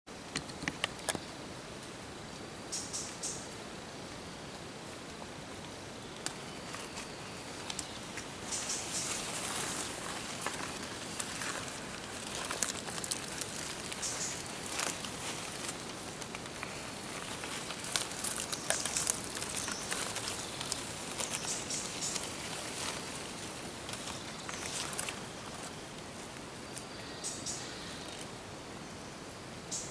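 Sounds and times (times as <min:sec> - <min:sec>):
dry leaves rustling and crackling: 0:06.2 - 0:26.9
twigs snapping: 0:06.2 - 0:26.9.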